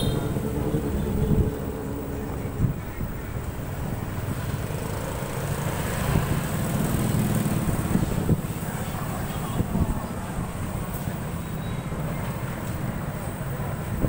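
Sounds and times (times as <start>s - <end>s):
motorbike engine: 0.0s - 12.1s
other motorbikes in traffic: 0.0s - 14.0s
road rumble: 0.0s - 14.0s.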